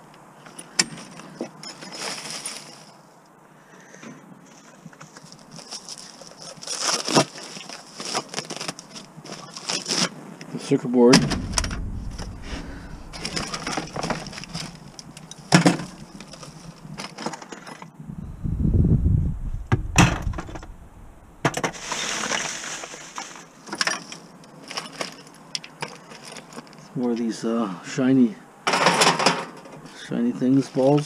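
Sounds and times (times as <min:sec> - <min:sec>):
scrap parts clinking in buckets: 0:00.5 - 0:03.0, 0:21.6 - 0:26.8
dull low bump: 0:11.2 - 0:17.0, 0:18.0 - 0:21.6.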